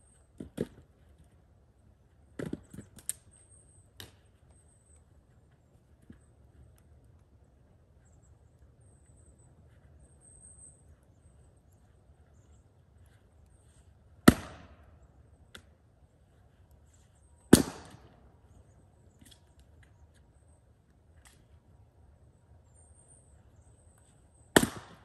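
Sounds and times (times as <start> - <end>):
axe striking firewood: 14.2 - 14.8, 17.5 - 18.1, 24.6 - 25.0.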